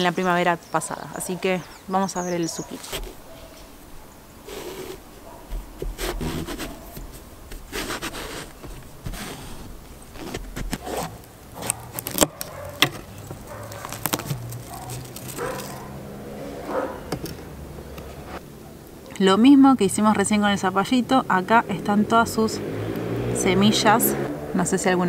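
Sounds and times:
knife cutting through zucchini: 4.5s - 13.0s
zucchini splitting with cracks: 4.9s - 15.8s.

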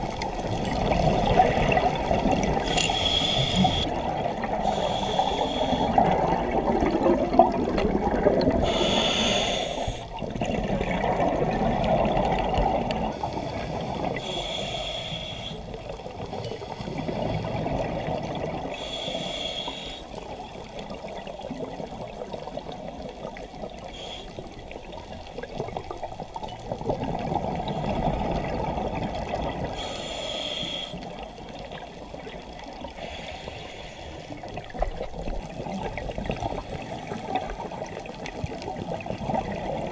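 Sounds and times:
gurgle of exhaled bubbles: 0.0s - 2.9s, 5.6s - 9.0s, 10.1s - 14.2s, 24.7s - 29.8s, 34.3s - 39.9s
regulator inhalation hiss: 2.6s - 3.9s, 4.6s - 6.0s, 8.6s - 10.1s, 13.3s - 15.7s, 18.8s - 20.2s, 23.9s - 24.4s, 29.8s - 31.1s, 33.0s - 34.3s.

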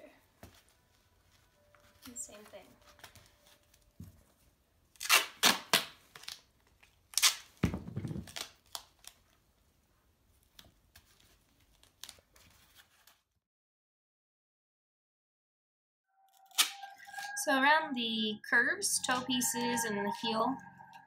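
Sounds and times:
duct tape ripping off roll: 4.9s - 9.2s, 16.4s - 17.0s
tape crinkling and tapping: 5.7s - 9.4s, 10.3s - 13.2s.

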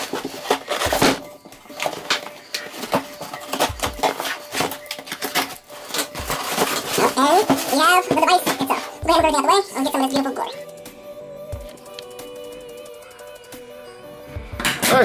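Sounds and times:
cardboard rustling and crackling: 0.0s - 9.0s.

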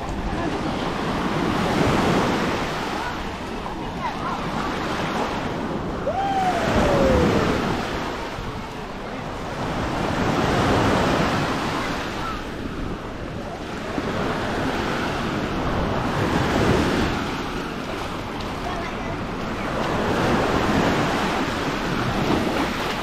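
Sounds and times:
waves breaking on shore: 0.0s - 23.0s
wind on microphone: 3.4s - 18.3s.

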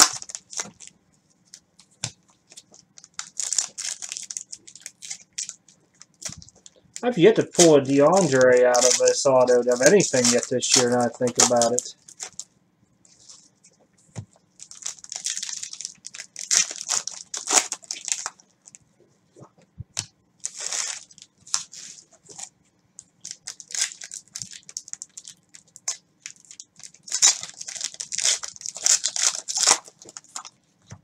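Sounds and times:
card packs tearing open: 0.0s - 0.9s, 2.5s - 12.4s, 14.6s - 18.4s, 20.4s - 22.5s, 23.2s - 30.5s
wrapper crinkling: 0.0s - 12.5s, 14.6s - 18.8s, 20.4s - 22.5s, 23.1s - 30.6s.

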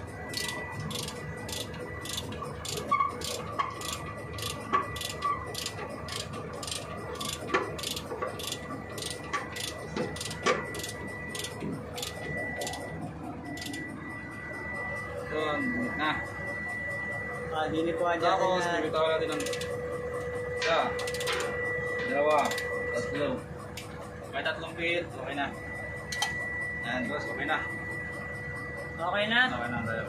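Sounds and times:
ratchet clicking: 0.3s - 12.8s, 19.4s - 19.7s, 21.0s - 21.5s, 22.4s - 22.6s.

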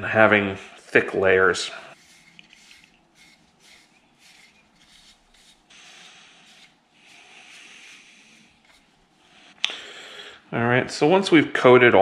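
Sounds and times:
rag rubbing on wood: 1.9s - 9.1s.

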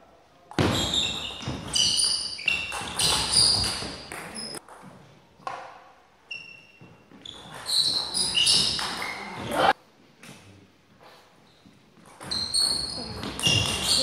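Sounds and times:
short high squeaks: 0.7s - 4.6s, 6.3s - 9.7s, 12.2s - 14.0s.

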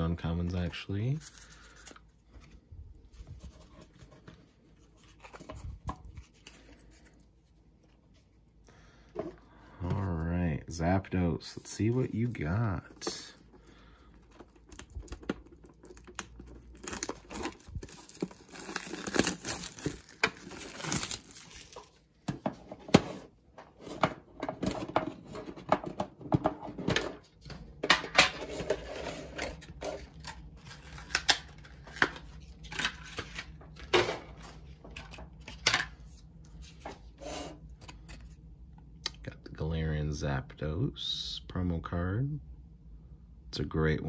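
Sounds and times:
plastic wrap tearing and crinkling: 14.6s - 22.0s.

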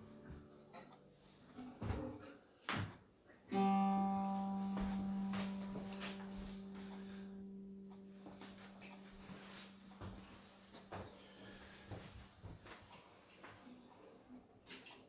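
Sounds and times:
low guitar note ringing: 3.5s - 11.8s.

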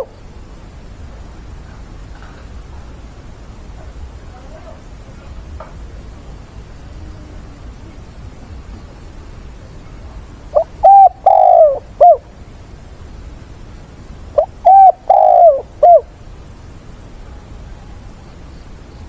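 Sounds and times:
dove cooing: 0.0s - 0.2s, 10.5s - 12.3s, 14.4s - 16.1s.

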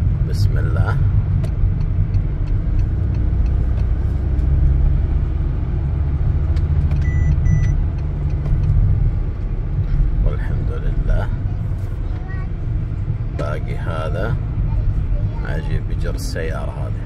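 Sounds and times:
car engine and road noise: 0.0s - 17.0s
short electronic beeps: 7.0s - 7.8s.

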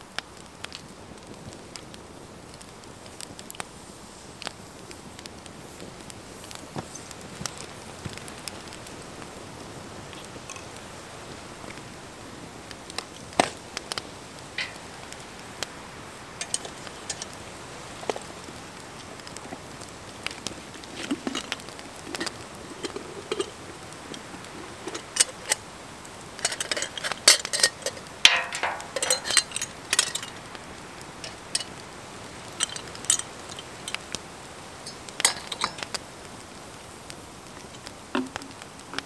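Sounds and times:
metal pot clinking and rattling: 10.4s - 10.8s, 14.6s - 15.5s, 16.3s - 18.4s, 20.4s - 34.1s, 34.8s - 36.0s
metal scrape: 14.6s - 15.1s, 16.4s - 17.4s, 20.8s - 25.6s, 26.4s - 30.4s, 34.8s - 36.0s.

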